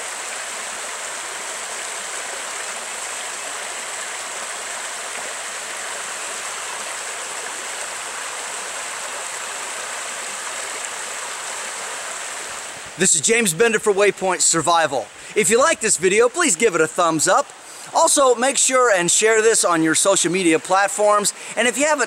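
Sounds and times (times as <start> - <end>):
creek water rushing over rocks: 0.0 - 22.0.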